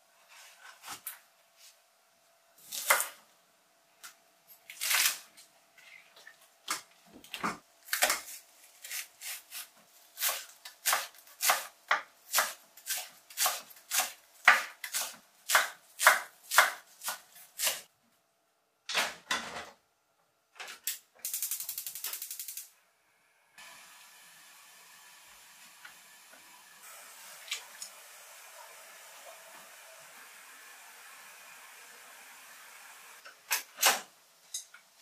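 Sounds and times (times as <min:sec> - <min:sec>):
knife chopping on wooden board: 0:10.2 - 0:17.8
gas burner hissing: 0:23.6 - 0:34.6.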